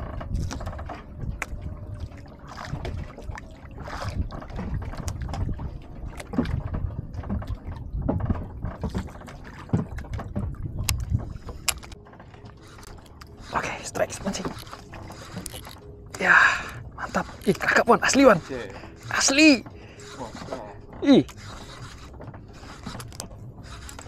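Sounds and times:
wind buffeting microphone: 0.0 - 11.8
water lapping against canoe hull: 0.0 - 24.0
light clicks and knocks: 4.4 - 16.2.

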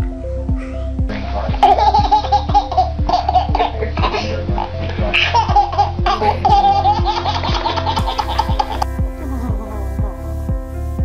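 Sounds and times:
background music with steady beat: 0.0 - 11.0
baby laughing: 1.2 - 8.9.

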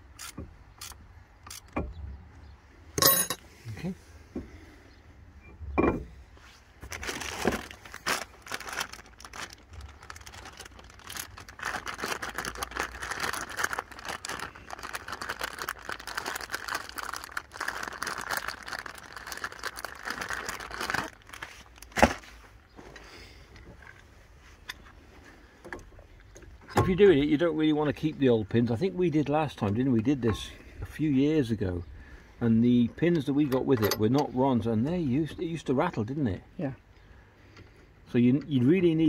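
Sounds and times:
plastic bag crinkling: 6.8 - 22.3.

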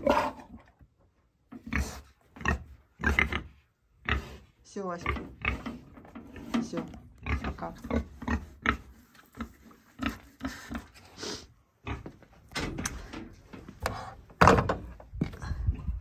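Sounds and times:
pig grunting: 0.0 - 0.7, 1.6 - 6.6.

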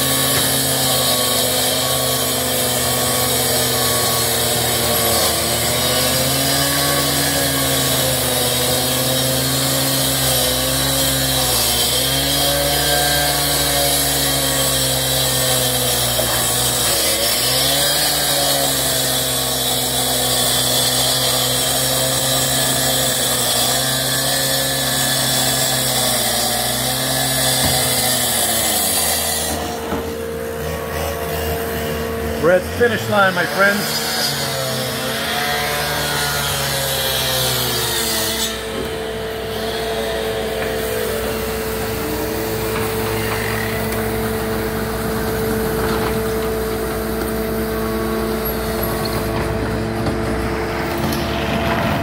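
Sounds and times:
concrete saw engine running: 0.0 - 52.0
saw blade grinding concrete: 0.0 - 52.0.

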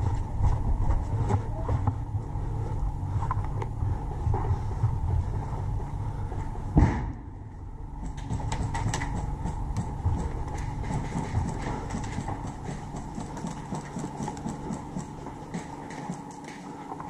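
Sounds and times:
footsteps and jostling rumble: 0.0 - 17.0
gear clicking and rattling: 8.0 - 16.7.

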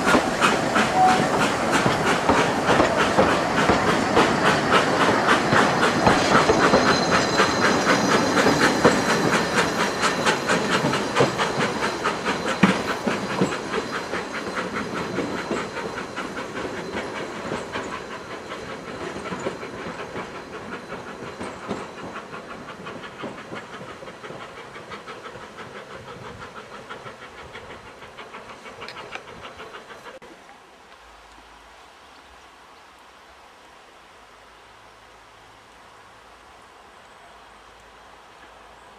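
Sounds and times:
train wheels clicking over rail joints: 0.0 - 30.2
hiss: 0.0 - 30.4.

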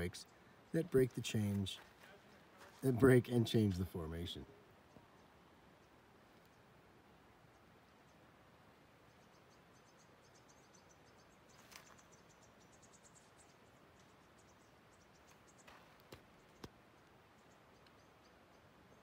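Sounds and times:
faint high-pitched chirping: 7.4 - 19.0.

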